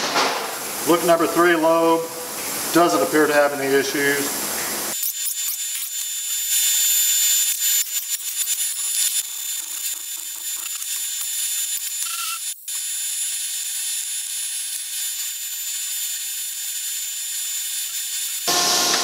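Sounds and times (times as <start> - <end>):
air tool bursts: 4.9 - 19.0.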